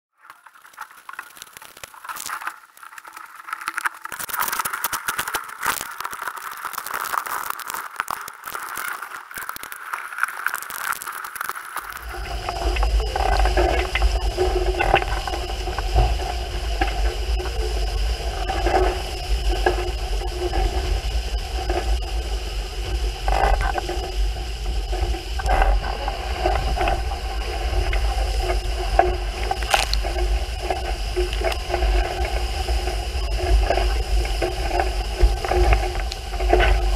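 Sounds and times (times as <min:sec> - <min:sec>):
scraping and clicking: 0:00.2 - 0:22.1, 0:24.9 - 0:36.9
water rushing along hull: 0:11.9 - 0:36.9.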